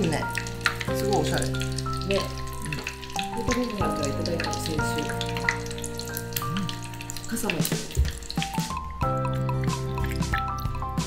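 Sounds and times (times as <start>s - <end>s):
background music of held notes: 0.0s - 11.0s
hot oil sizzling and crackling: 0.0s - 11.0s.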